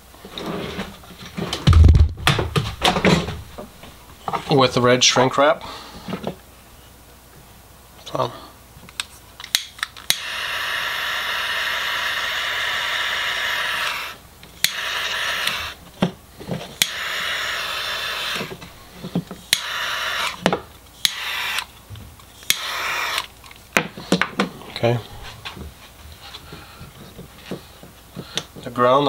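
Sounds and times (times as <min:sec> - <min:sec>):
heat gun blowing: 0:10.0 - 0:15.8, 0:16.5 - 0:24.2.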